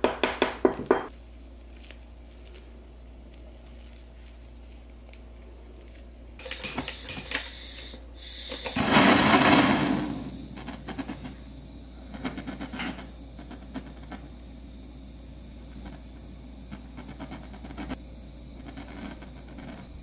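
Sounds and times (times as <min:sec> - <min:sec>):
blowtorch lighting whoosh: 0:08.6 - 0:11.4.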